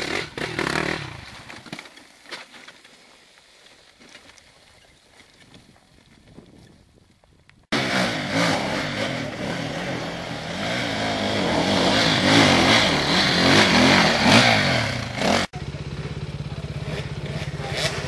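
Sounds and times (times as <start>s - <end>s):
dirt bike engine revving: 0.0s - 1.5s, 7.7s - 18.0s
dirt bike engine at low revs: 0.0s - 1.7s, 7.5s - 18.0s.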